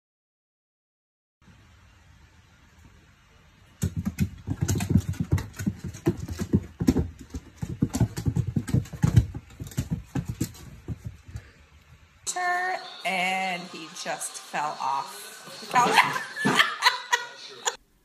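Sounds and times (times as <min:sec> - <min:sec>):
cat paws thumping on floor: 0:03.8 - 0:11.6.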